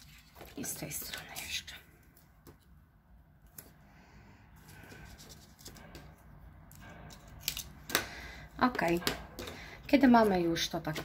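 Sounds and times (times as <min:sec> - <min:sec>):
rustling of card and tape: 0:00.0 - 0:02.8, 0:04.6 - 0:06.2.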